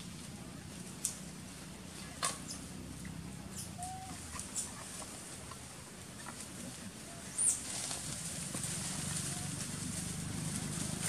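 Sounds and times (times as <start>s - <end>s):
low animal call: 3.6s - 4.8s.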